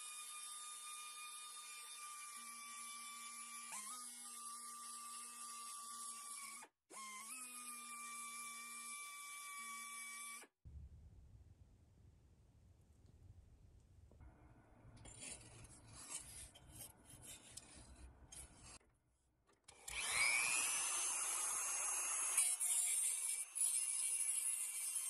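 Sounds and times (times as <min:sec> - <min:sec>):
small power tool whine: 0:00.0 - 0:10.6, 0:19.7 - 0:25.0
hand tool scraping: 0:14.9 - 0:18.8.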